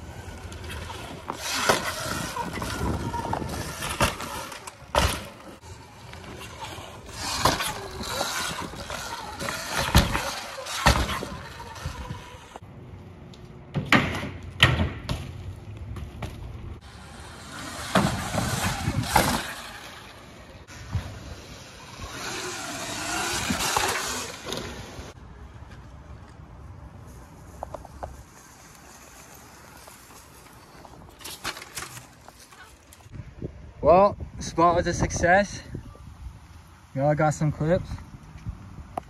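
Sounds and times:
bicycle tyres rolling on concrete: 0.0s - 33.4s, 35.4s - 39.0s
bikes landing with thuds: 0.1s - 12.6s, 13.7s - 25.1s, 30.0s - 33.1s.

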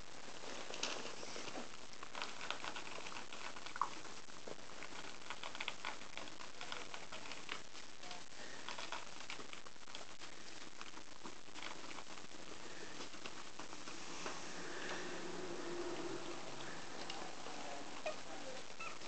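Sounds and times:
paper rustling: 0.2s - 7.6s
puppy paws pattering on paper: 0.2s - 15.1s.

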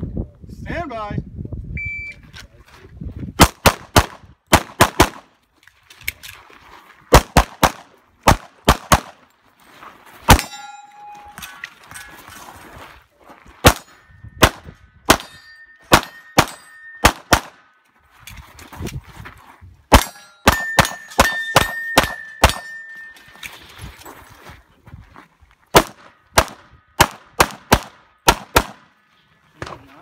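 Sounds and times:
pistol shots: 3.4s - 5.3s, 7.1s - 9.2s, 10.3s - 10.6s, 13.6s - 17.6s, 19.9s - 22.7s, 25.7s - 28.9s
metallic ring: 10.3s - 12.5s, 15.2s - 17.1s, 20.0s - 23.7s.

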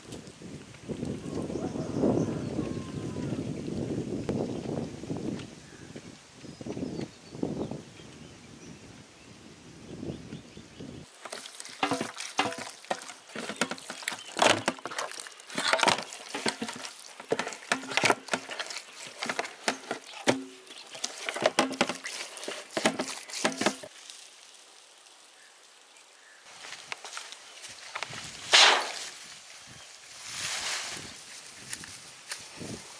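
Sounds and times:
hands squelching wet marinade: 11.1s - 23.9s.

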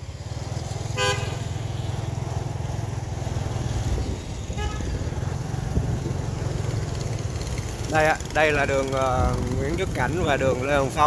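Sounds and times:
traffic rumble: 0.0s - 11.0s
car horn toot: 1.0s - 1.5s, 4.6s - 5.0s.

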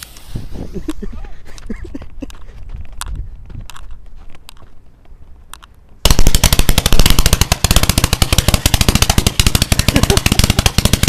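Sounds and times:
firework rapid sharp bangs: 6.0s - 11.0s.

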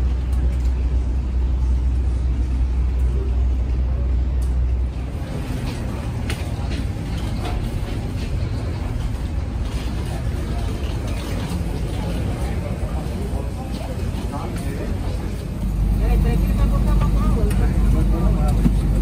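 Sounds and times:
faint voices: 1.6s - 19.0s
loud low rumble: 14.1s - 19.0s.

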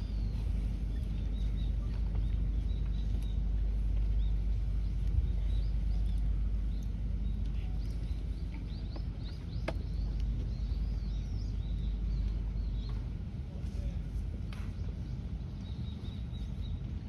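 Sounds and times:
low outdoor rumble: 0.0s - 17.0s
small birds chirping: 0.0s - 17.0s.

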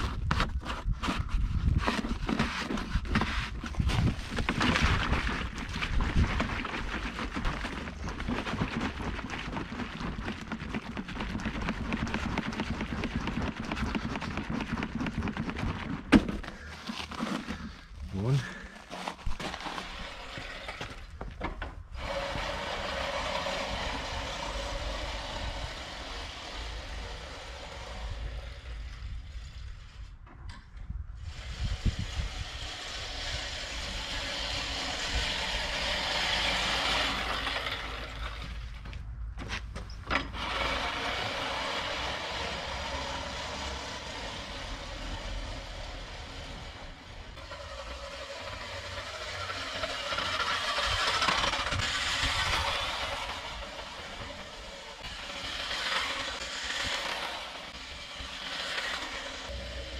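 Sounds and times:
hand pump plunger strokes: 0.0s - 21.3s, 31.2s - 38.9s, 40.0s - 59.9s
reel lawn mower whirring: 0.0s - 59.9s.

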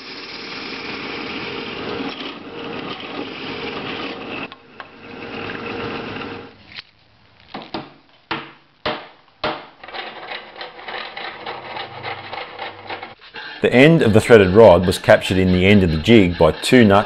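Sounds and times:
drill press boring steel: 0.0s - 6.5s.

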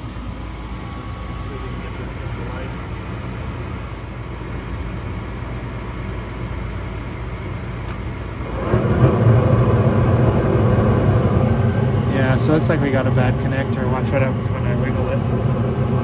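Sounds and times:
furnace motor hum: 0.0s - 16.0s
sharp click: 7.8s - 8.0s
rush of gas flame: 7.9s - 16.0s.

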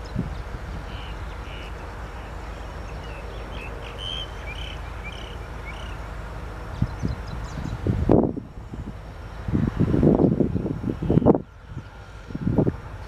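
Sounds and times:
birds chirping: 0.0s - 9.1s
distant diesel locomotive rumble: 0.0s - 13.0s.

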